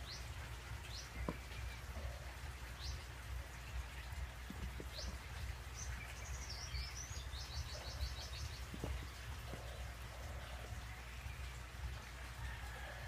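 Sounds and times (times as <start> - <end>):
faint taps: 1.2 - 1.5
small bird chirping: 3.9 - 11.6.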